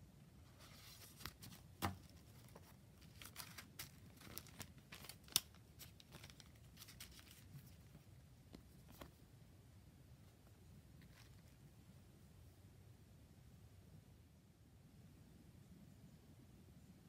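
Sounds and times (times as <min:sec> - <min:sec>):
paper rustling: 0:00.4 - 0:09.2, 0:11.0 - 0:11.6.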